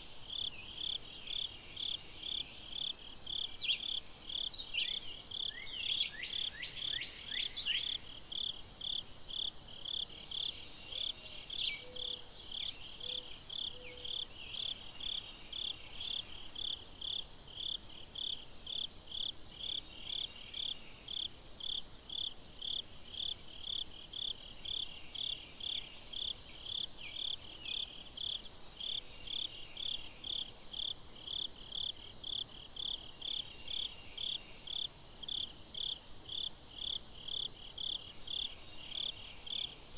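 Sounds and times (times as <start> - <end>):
insect chirping: 0.0 - 39.9.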